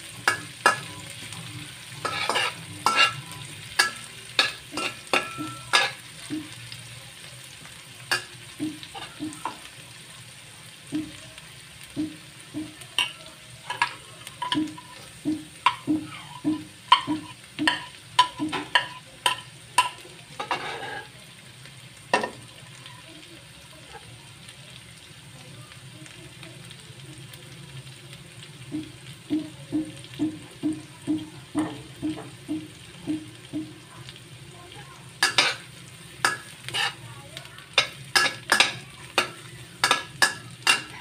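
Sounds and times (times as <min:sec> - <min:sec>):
onions sizzling in oil: 0:00.0 - 0:41.0
metal spatula scraping and knocking: 0:02.0 - 0:06.0, 0:12.6 - 0:21.1, 0:36.2 - 0:37.0.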